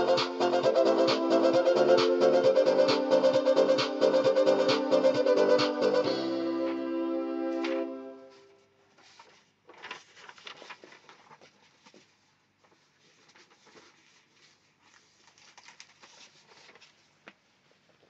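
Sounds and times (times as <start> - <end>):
faint clicks and rustles: 8.5 - 18.0.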